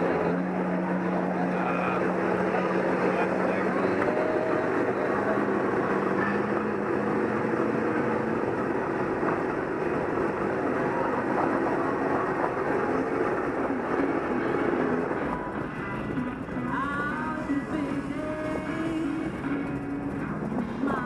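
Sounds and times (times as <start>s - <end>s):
diesel engine running: 0.0s - 21.0s.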